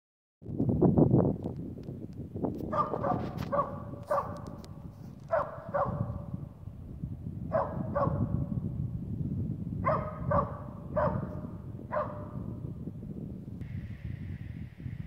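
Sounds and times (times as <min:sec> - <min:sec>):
wind rumble on microphone: 0:00.4 - 0:15.0
dog barking: 0:02.7 - 0:04.6, 0:05.3 - 0:06.4, 0:07.5 - 0:08.6, 0:09.8 - 0:12.6.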